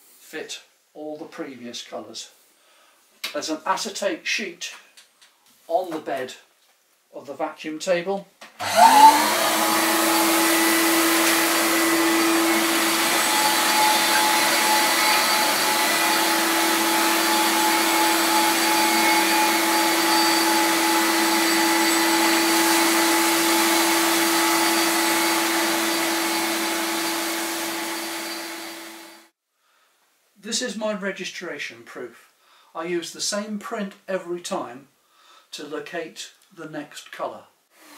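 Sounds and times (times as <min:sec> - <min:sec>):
vacuum motor whining: 0:08.6 - 0:29.2.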